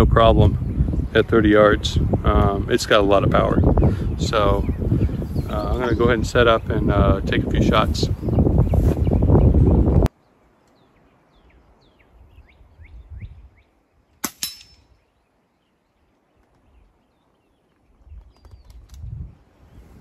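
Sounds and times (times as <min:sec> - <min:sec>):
small birds chirping: 0:00.2 - 0:20.0
air rifle shot: 0:14.2 - 0:14.8.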